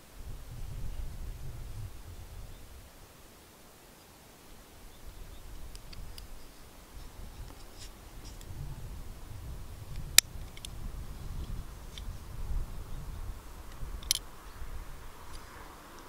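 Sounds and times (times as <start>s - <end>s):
small metal clicks: 13.7s - 14.3s.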